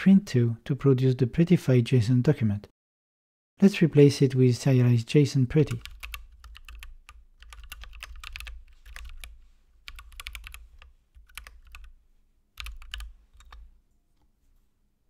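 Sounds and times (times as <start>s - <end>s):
typing on computer keyboard: 5.7s - 11.9s, 12.6s - 13.7s.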